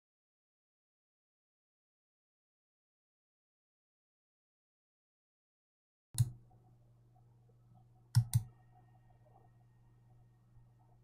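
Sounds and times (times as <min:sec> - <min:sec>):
faint low hum: 0:06.2 - 0:11.0
sharp clicks: 0:08.1 - 0:08.5.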